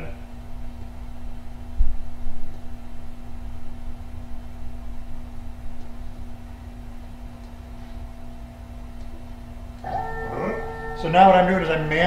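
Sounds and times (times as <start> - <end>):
electric machinery hum: 0.0 - 12.0.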